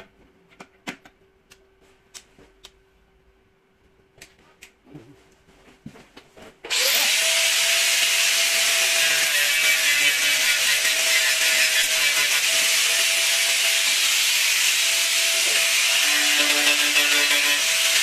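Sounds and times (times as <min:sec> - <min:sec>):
angle grinder grinding steel: 0:06.7 - 0:18.0.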